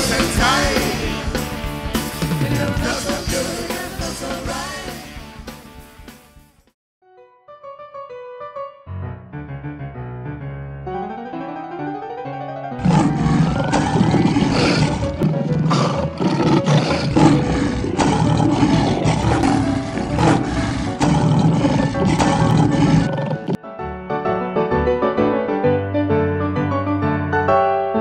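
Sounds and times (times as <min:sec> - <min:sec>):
piano music: 0:07.0 - 0:28.0.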